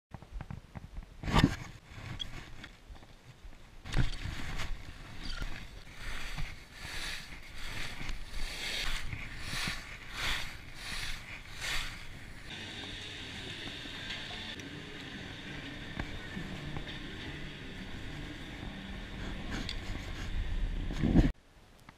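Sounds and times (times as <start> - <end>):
skis scraping on packed snow: 3.8 - 21.2.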